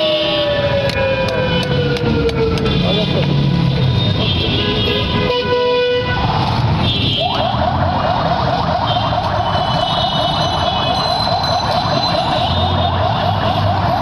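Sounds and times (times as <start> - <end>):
traffic engines: 0.0 - 14.0
vehicle horns: 4.0 - 7.5, 8.8 - 13.8.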